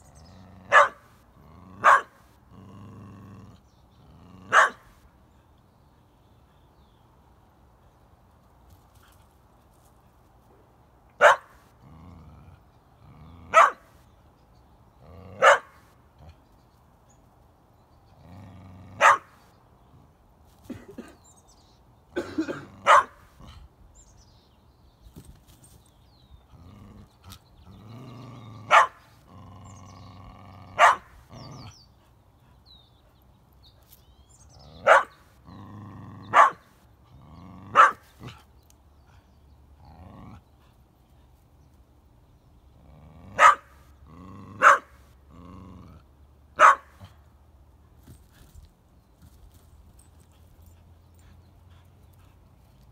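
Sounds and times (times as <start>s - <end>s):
dog barking: 0.7s - 1.1s, 1.8s - 2.2s, 4.5s - 4.9s, 11.2s - 11.5s, 13.5s - 13.8s, 15.4s - 15.8s, 19.0s - 19.3s, 22.5s - 23.2s, 28.7s - 29.0s, 30.8s - 31.1s, 34.8s - 35.2s, 36.3s - 36.6s, 37.7s - 38.0s, 43.4s - 43.8s, 44.6s - 45.0s, 46.6s - 47.0s.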